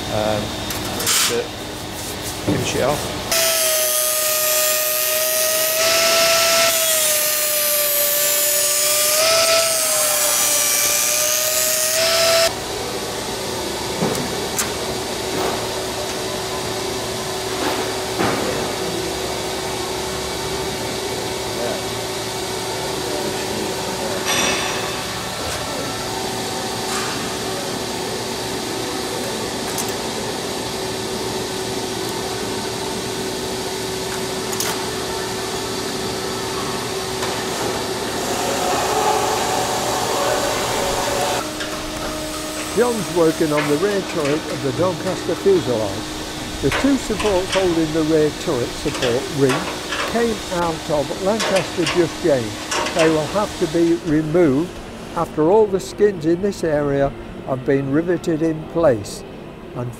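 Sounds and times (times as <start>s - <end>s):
steady hum: 0.0s - 59.9s
air drill whining: 3.3s - 12.6s, 34.5s - 53.8s.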